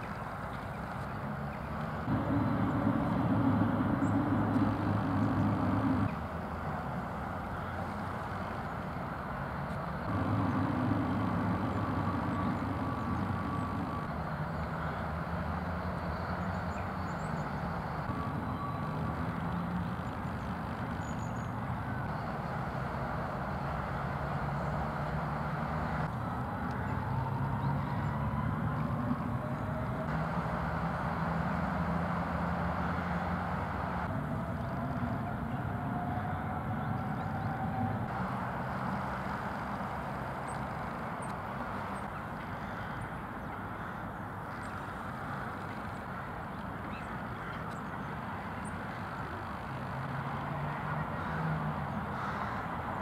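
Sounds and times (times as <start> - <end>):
road traffic rumble: 0.0 - 53.0
vehicle passing with a whine: 1.3 - 7.3, 9.9 - 42.2.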